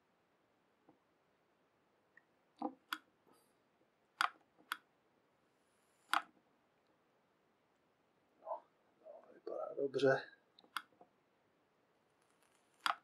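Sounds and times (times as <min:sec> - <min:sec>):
small parts clicking on desk: 0:12.2 - 0:13.0.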